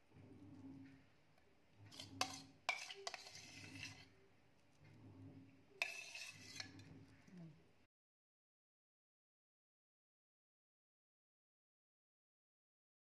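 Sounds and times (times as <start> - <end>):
spoon scraping metal pot: 1.7 - 4.7, 5.5 - 7.3
spoon clinking against pot: 1.9 - 4.1, 5.8 - 6.9.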